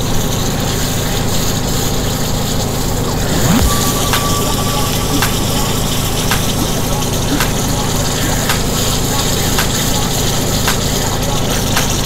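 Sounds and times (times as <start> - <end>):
low steady hum: 2.9 - 10.2.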